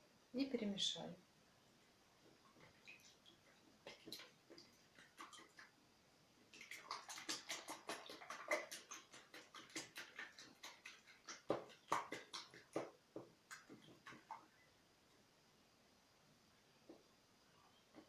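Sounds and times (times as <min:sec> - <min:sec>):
whisk beating eggs in plastic bowl: 0:06.6 - 0:14.4.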